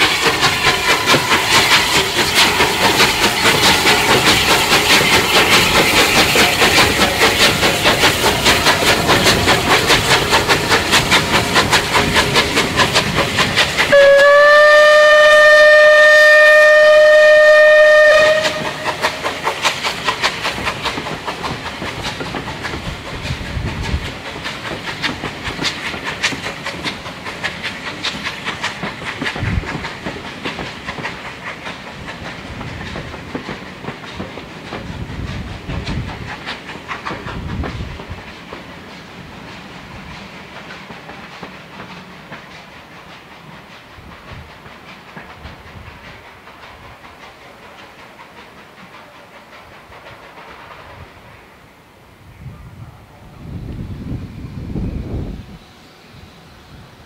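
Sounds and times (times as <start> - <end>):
wheels clacking over rail joints: 0.0 - 51.3
steam locomotive chuffing: 0.0 - 52.2, 52.9 - 57.0
train whistle blast: 13.9 - 19.2.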